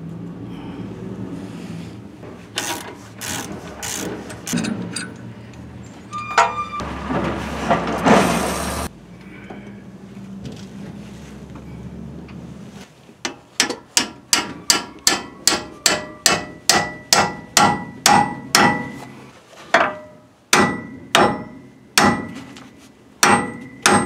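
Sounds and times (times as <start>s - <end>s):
loud metal scraping: 6.1s - 8.9s.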